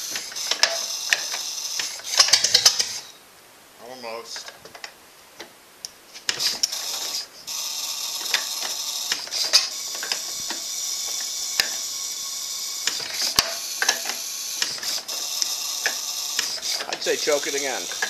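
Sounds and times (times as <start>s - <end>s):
old car engine running: 6.3s - 18.0s
engine pops and clicks: 8.2s - 11.8s, 12.8s - 17.2s.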